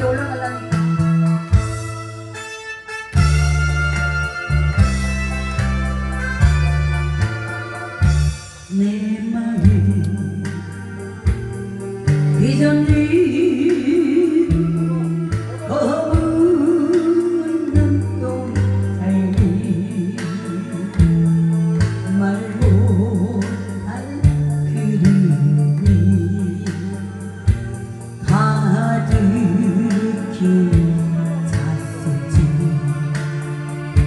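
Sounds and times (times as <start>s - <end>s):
woman singing into microphone: 0.0s - 1.1s, 8.7s - 10.9s, 12.3s - 27.5s, 28.2s - 33.3s
instrumental backing track: 0.0s - 34.0s.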